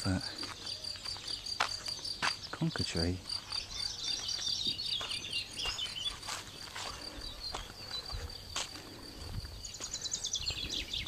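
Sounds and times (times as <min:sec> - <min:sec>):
insects chirring: 0:00.0 - 0:11.0
footsteps: 0:00.3 - 0:10.7
small bird twittering: 0:03.4 - 0:06.6.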